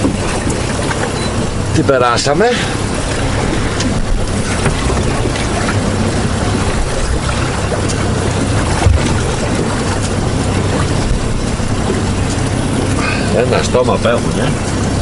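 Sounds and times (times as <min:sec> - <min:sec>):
low steady hum: 0:00.0 - 0:15.0
water slapping boat hull: 0:00.0 - 0:15.0
wind buffeting microphone: 0:00.0 - 0:15.0.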